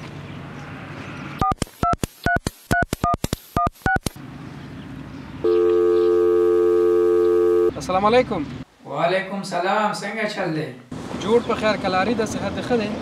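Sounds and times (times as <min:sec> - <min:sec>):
phone keypad beeps: 0:01.4 - 0:04.1, 0:05.5 - 0:07.7.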